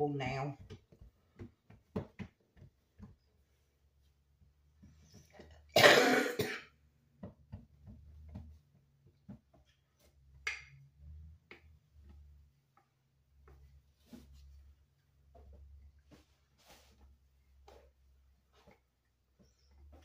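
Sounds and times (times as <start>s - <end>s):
hands kneading dough: 0.0s - 5.7s, 6.9s - 20.0s
woman coughing: 5.8s - 6.7s.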